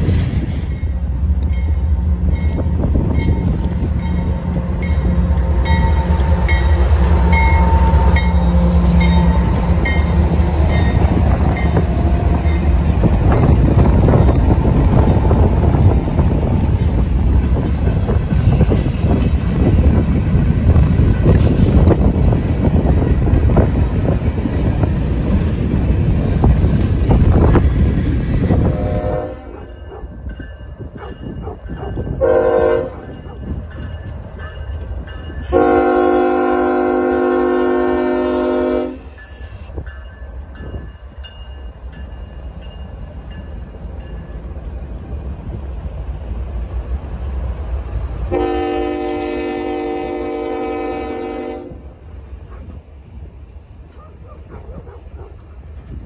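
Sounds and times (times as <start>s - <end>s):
freight cars rumbling: 0.0s - 32.2s
diesel locomotive engines: 0.0s - 56.0s
wind on microphone: 9.4s - 29.4s
train air horn blasts: 28.6s - 29.6s, 32.2s - 33.1s, 35.4s - 39.7s, 48.3s - 51.9s.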